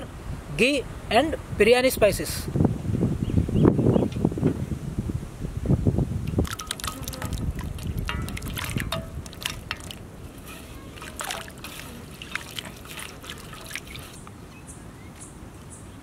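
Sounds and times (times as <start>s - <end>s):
water dripping: 6.2s - 14.2s
water splashing in a metal plate: 6.3s - 14.2s.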